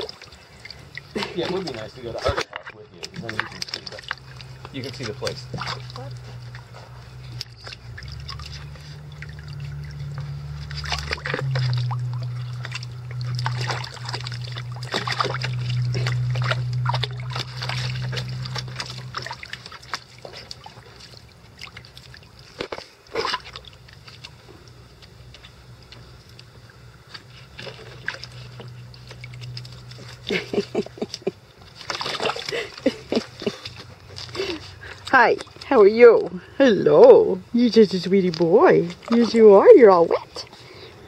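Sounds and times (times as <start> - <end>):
sharp splash: 0.0 - 6.1, 10.6 - 24.0, 31.8 - 34.6
low hum: 0.0 - 41.0
puppies splashing in water: 0.0 - 41.0.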